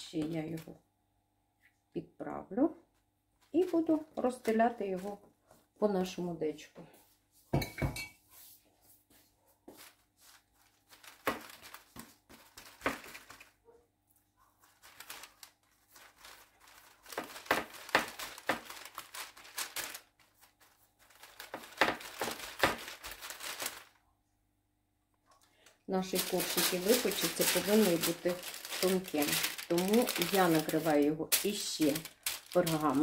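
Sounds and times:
baking paper crinkling: 3.4 - 5.6, 9.1 - 24.1, 25.6 - 33.0.

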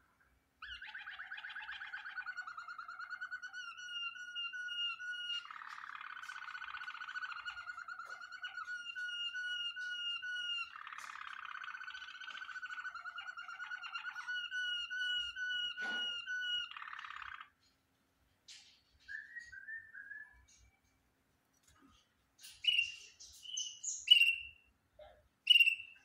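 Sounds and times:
canary singing trills: 0.6 - 17.6, 21.7 - 24.7, 25.5 - 26.0
short bird chirps: 22.4 - 24.6, 25.5 - 26.0.

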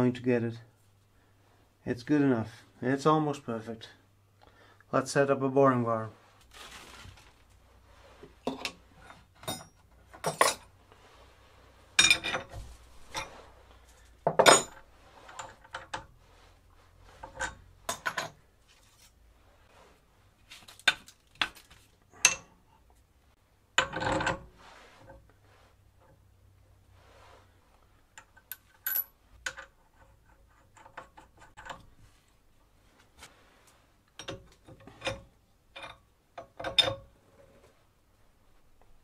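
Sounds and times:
metal tools clattering: 8.5 - 10.7, 12.0 - 13.4, 14.3 - 16.0.

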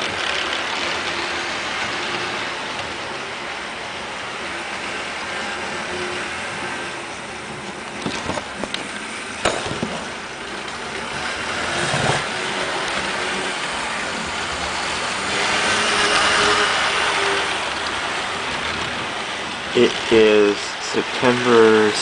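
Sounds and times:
model train motor whirring: 0.0 - 3.7, 10.0 - 22.0
train wheels rolling on rails: 0.0 - 22.0.

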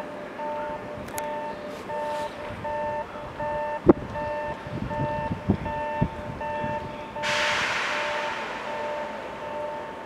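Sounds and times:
two-tone warning beeps: 0.4 - 7.4.

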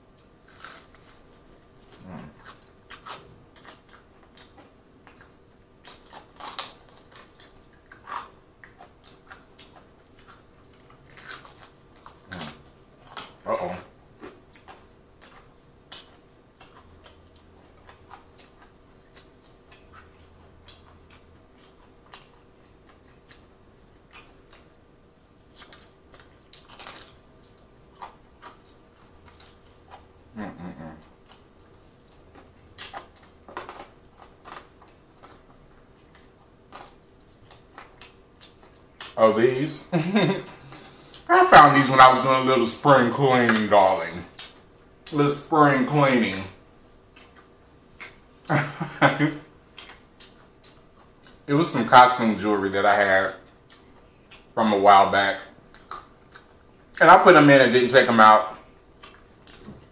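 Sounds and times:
crunching fried chicken: 0.1 - 59.9
wet chewing mouth sounds: 55.7 - 57.0.

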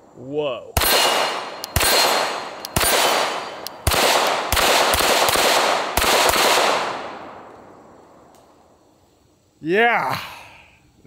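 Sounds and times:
pistol shots echoing: 0.8 - 7.5.

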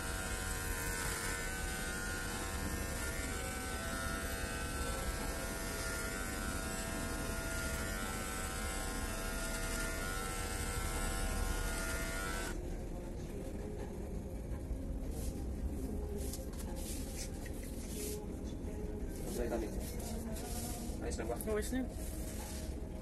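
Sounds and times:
electric hair clippers buzzing: 0.0 - 12.6.

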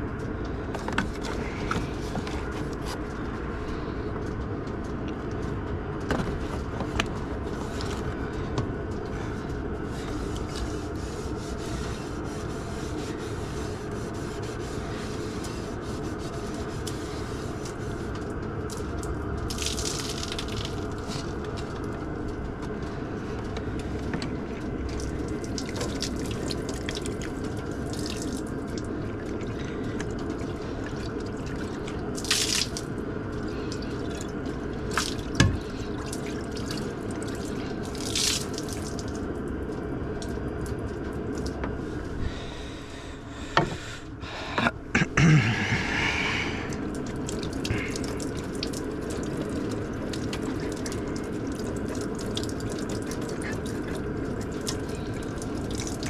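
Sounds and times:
water gushes: 6.7 - 42.5, 45.0 - 56.0
water running and splashing: 7.4 - 41.6, 46.7 - 56.0.

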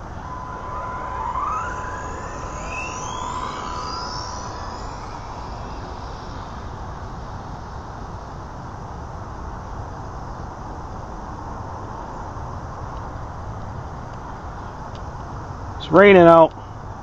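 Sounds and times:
rc car electric motor whine: 0.0 - 8.8
steady high tone: 0.0 - 8.8.

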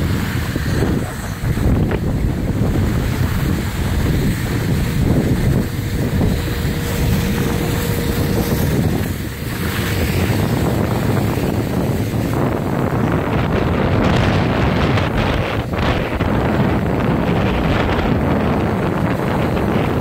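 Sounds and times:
wind buffeting microphone: 0.0 - 20.0
skis scraping on packed snow: 2.4 - 12.5.

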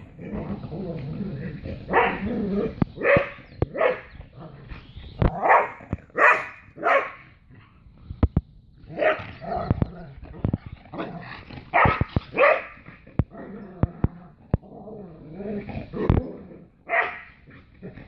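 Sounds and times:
dogs barking: 1.5 - 7.4, 8.8 - 13.3, 16.8 - 18.0.

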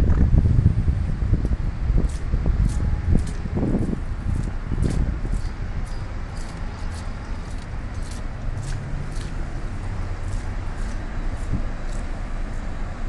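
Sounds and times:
low outdoor rumble: 0.0 - 13.0
light footsteps: 2.1 - 12.2.

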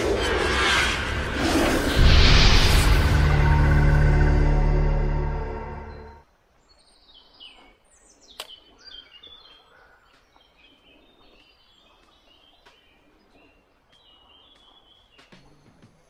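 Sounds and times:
birdsong chirping: 5.8 - 16.0.

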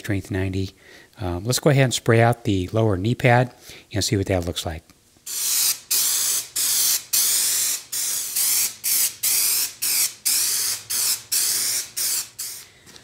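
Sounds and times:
aerosol can spraying hiss bursts: 5.2 - 12.7.

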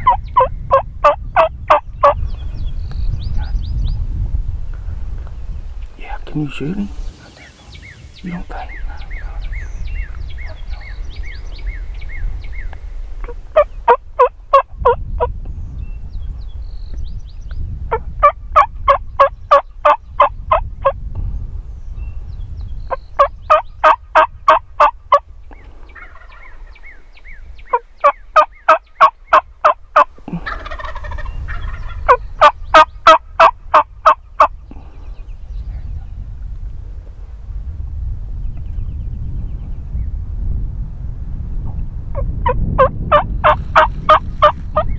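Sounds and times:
turkey call yelps: 0.0 - 2.2.

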